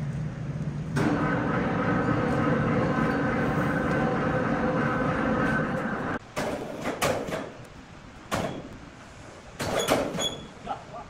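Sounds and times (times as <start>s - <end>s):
sawmill mechanical drone: 0.0s - 6.2s
sharp knocks: 8.3s - 8.7s.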